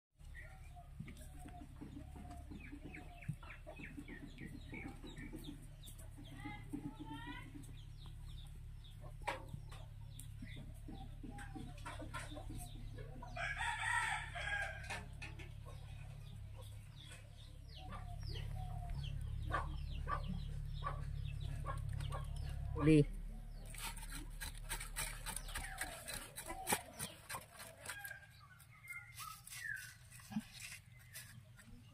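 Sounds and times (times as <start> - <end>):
chickens clucking: 0.2 - 31.9
rooster crowing: 13.4 - 14.9.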